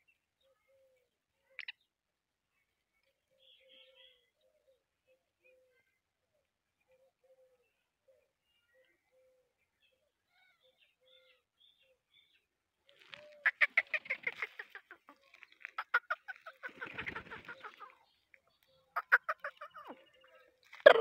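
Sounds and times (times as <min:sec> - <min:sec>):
bird clucking: 0:13.0 - 0:18.1, 0:18.9 - 0:21.0.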